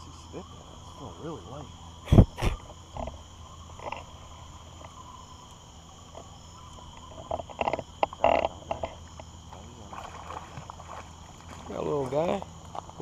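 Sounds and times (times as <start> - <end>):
insects and frogs chorus: 0.0 - 13.0.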